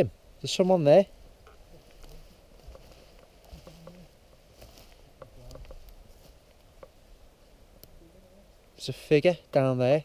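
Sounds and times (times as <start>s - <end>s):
light patter: 1.2s - 8.8s.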